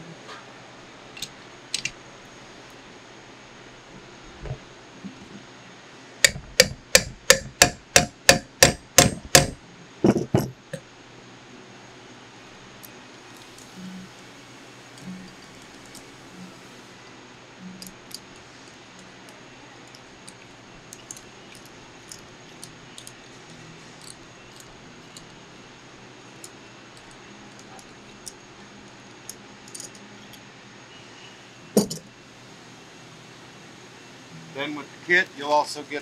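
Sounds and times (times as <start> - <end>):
metal tool clunk on wood: 10.0 - 10.8, 31.8 - 32.0.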